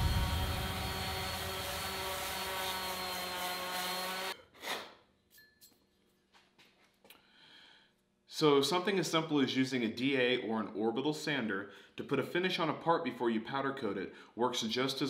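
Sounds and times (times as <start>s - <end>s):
orbital sander on metal: 0.0s - 4.4s.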